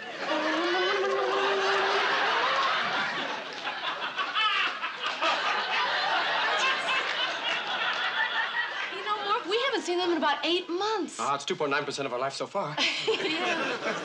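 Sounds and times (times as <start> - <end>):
audience laughing: 0.0 - 9.9, 12.8 - 14.0.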